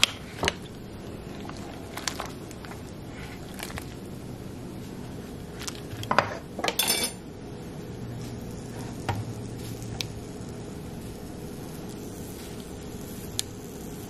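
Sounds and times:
metal utensils clinking on pot: 6.1s - 7.2s.

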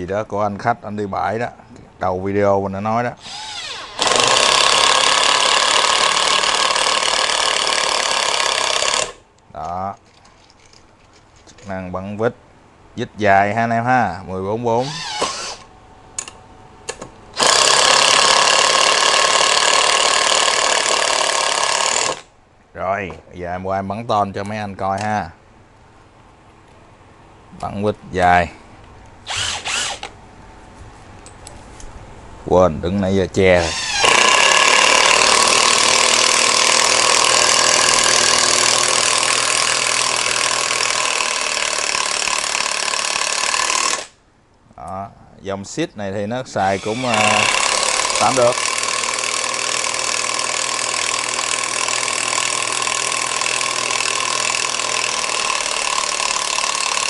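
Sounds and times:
cordless drill motor under load: 3.2s - 9.2s, 14.8s - 15.7s, 17.4s - 22.3s, 29.3s - 30.1s, 33.6s - 44.2s, 46.7s - 57.0s
cordless screwdriver motor running: 29.3s - 30.1s, 46.7s - 57.0s.

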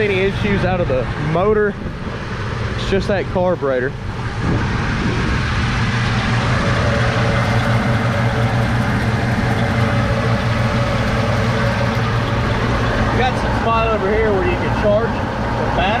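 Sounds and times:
engine idling: 5.6s - 16.0s.

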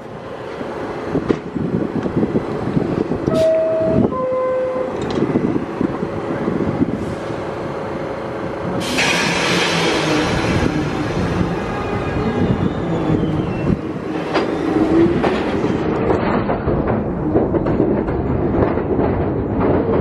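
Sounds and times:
subway train low rumble: 0.0s - 20.0s
loud hiss of air: 8.8s - 12.2s.

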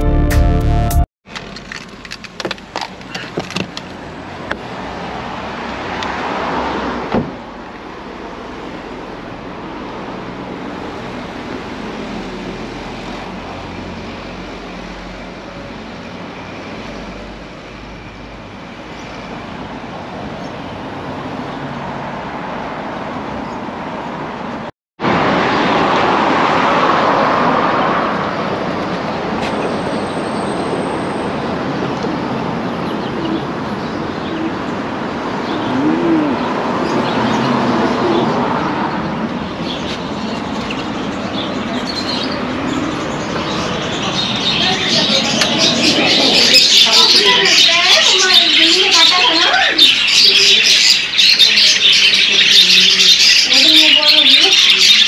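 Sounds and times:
cars passing: 1.4s - 55.0s
thump: 7.1s - 7.4s.

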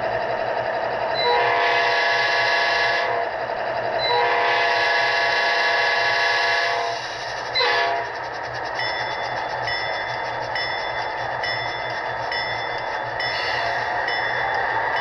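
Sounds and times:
low diesel engine hum: 0.0s - 15.0s
model train horn blasts: 1.2s - 3.3s, 4.0s - 8.2s.

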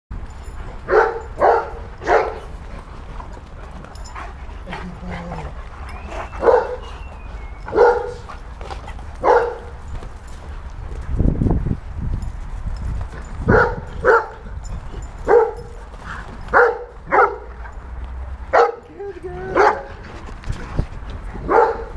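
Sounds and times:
dog barking deeply: 0.9s - 2.4s, 6.4s - 6.8s, 7.7s - 8.3s, 9.2s - 9.7s, 13.5s - 14.4s, 16.5s - 17.5s, 21.4s - 21.9s.

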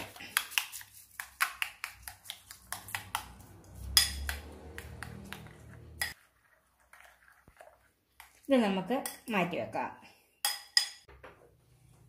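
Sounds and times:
spoon clinking against glass bowl: 3.8s - 5.2s, 10.4s - 11.1s
wet churning: 4.7s - 8.7s.

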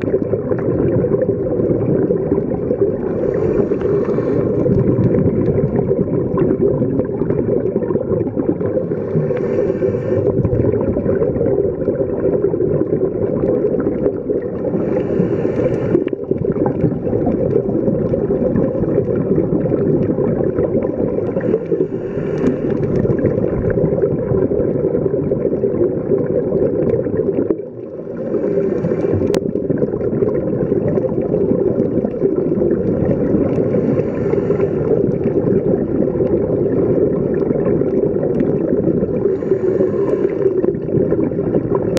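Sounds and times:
muffled underwater noise: 0.0s - 26.1s, 26.8s - 31.2s, 32.1s - 41.9s
diver's regulator exhalation bubbling: 0.0s - 41.9s.

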